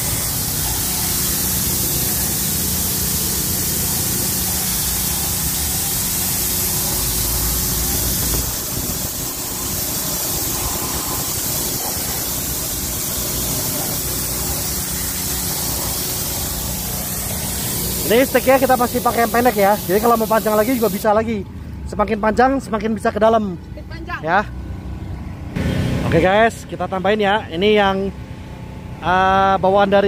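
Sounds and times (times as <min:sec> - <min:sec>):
water spray hissing on car: 0:00.0 - 0:21.1.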